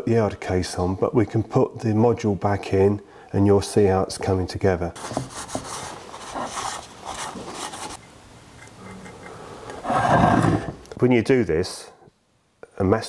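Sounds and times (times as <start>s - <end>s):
cloth rubbing on metal: 5.0s - 8.0s.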